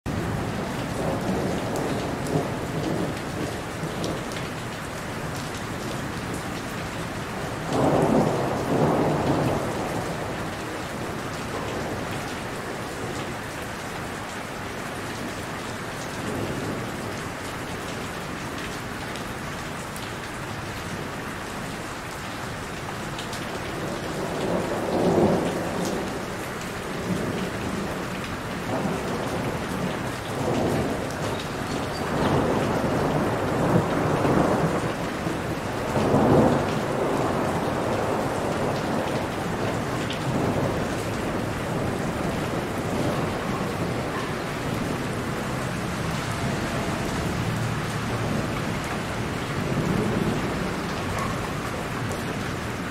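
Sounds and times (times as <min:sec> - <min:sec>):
heavy rain falling: 0:00.1 - 0:52.9
thunder rumbling: 0:07.5 - 0:12.3, 0:28.6 - 0:52.9.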